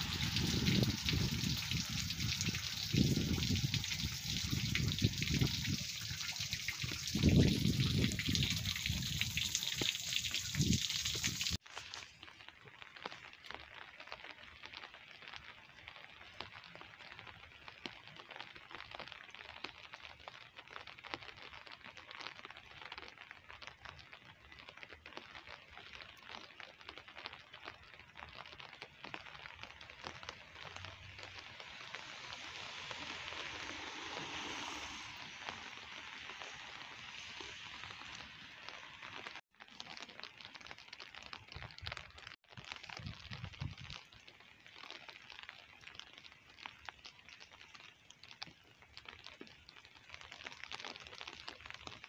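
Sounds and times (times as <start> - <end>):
rain pattering on pavement: 0.0 - 52.0
broad hiss: 32.0 - 38.1.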